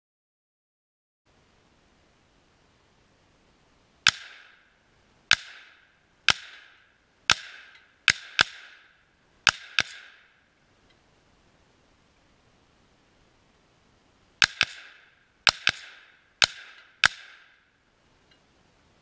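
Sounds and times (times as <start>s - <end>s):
rifle shots: 4.0s - 4.7s, 5.3s - 10.3s, 14.4s - 17.6s.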